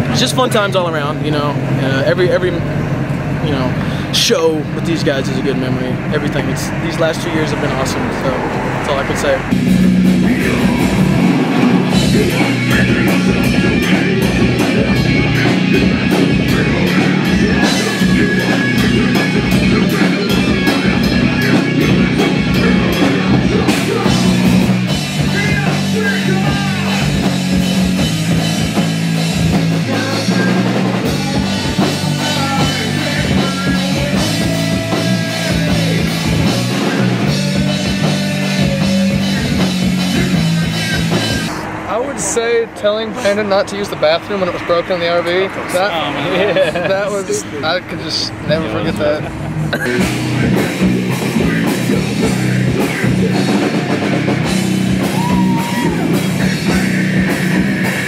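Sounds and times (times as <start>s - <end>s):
heavy metal band playing: 0.0s - 58.0s
person singing: 10.1s - 27.3s, 29.7s - 41.6s, 49.8s - 54.2s, 55.0s - 58.0s.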